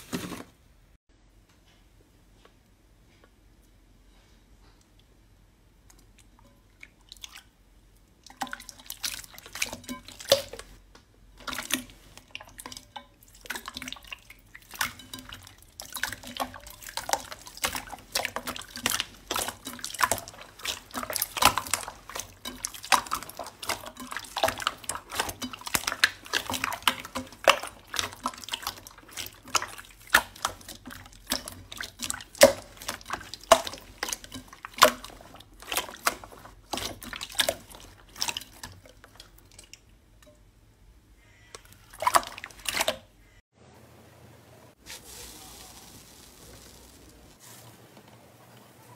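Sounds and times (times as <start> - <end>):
slime squishing with sticky pops: 13.3 - 39.9.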